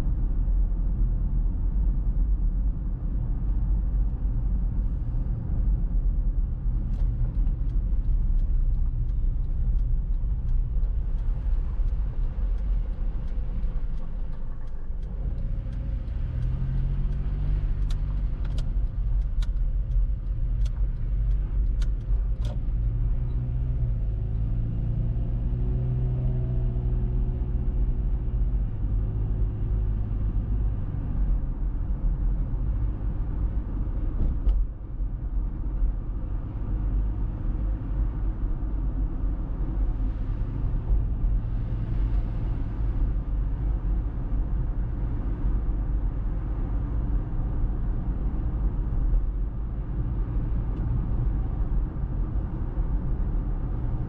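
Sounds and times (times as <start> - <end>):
car engine accelerating: 6.7 - 31.2.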